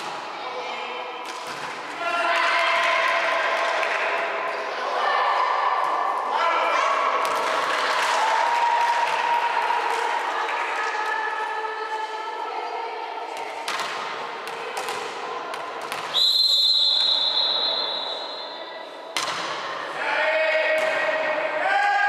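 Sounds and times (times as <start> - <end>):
players' voices: 0.0 - 22.0
referee's whistle: 16.1 - 18.6.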